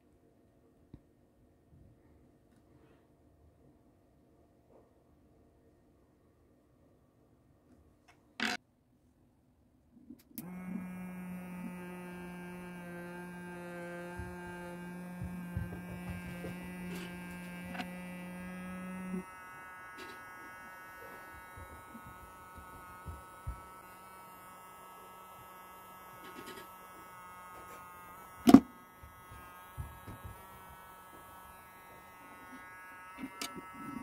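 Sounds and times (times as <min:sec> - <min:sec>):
fan motor humming and whining: 0:10.4 - 0:34.0.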